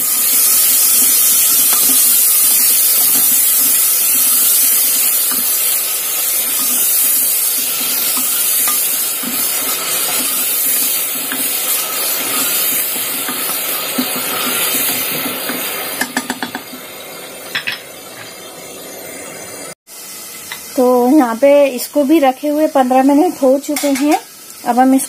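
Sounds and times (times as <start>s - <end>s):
food sizzling in hot oil: 0.0s - 25.0s
wooden spatula stirring: 5.0s - 15.6s.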